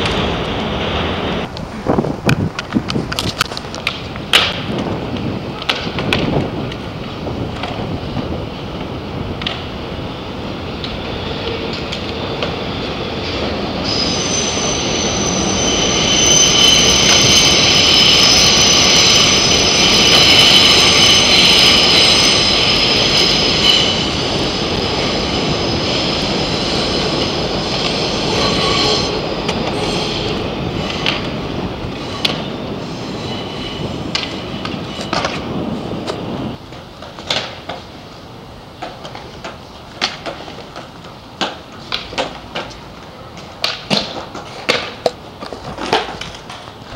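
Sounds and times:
train wheels rumbling and rattling: 0:00.0 - 0:46.9
high steady wheel squeal: 0:09.6 - 0:36.6.

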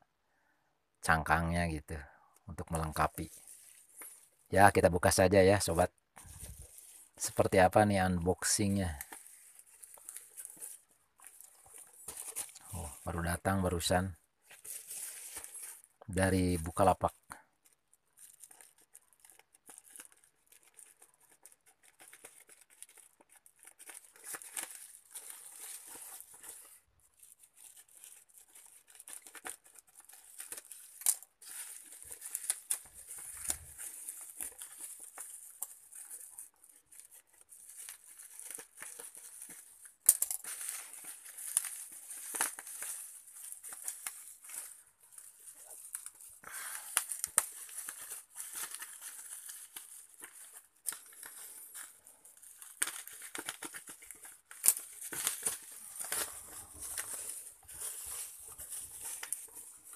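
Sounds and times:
plastic crinkling and tearing: 0:02.6 - 0:59.9
scissors cutting wrapping: 0:17.6 - 0:59.9.

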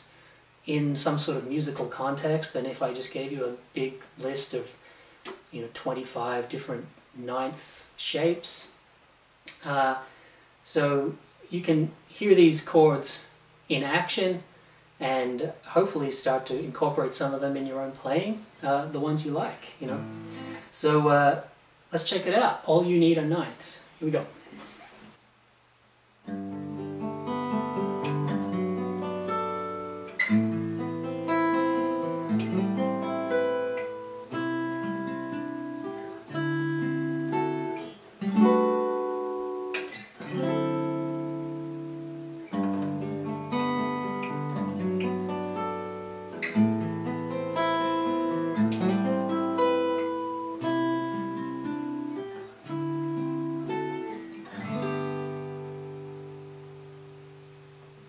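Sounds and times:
fingerstyle acoustic guitar: 0:19.9 - 0:20.7, 0:26.2 - 0:58.0.

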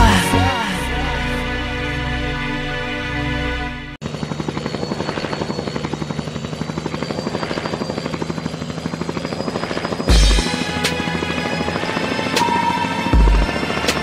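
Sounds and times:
background music: 0:00.0 - 0:04.0, 0:10.1 - 0:14.0
helicopter flying past: 0:04.0 - 0:14.0.

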